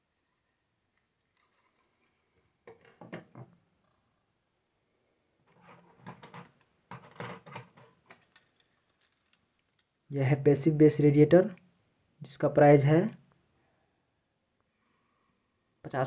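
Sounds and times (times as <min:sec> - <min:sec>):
handling noises on a tabletop: 0:05.5 - 0:09.9.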